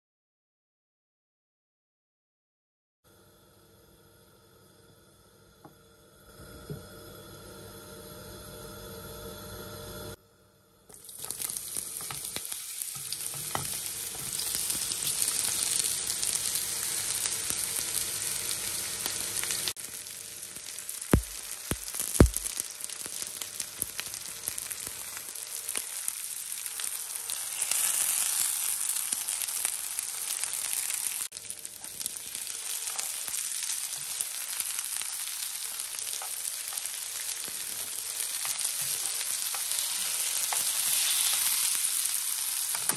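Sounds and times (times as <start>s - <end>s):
vegetables sizzling in oil: 10.9s - 42.9s
tongs turning slices: 31.8s - 42.7s.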